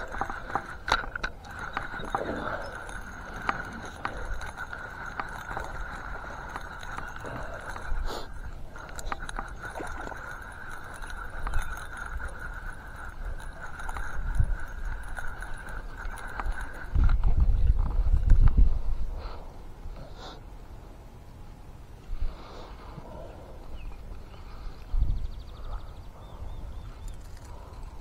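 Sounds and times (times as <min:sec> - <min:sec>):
fishing reel cranking: 0:00.0 - 0:18.0, 0:26.8 - 0:28.0.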